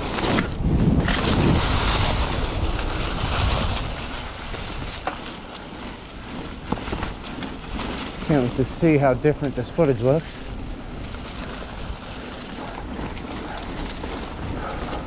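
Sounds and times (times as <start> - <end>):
bike tyres on dirt trail: 0.0 - 15.0
wind rushing over microphone: 0.0 - 15.0
bike knocking: 4.5 - 8.7.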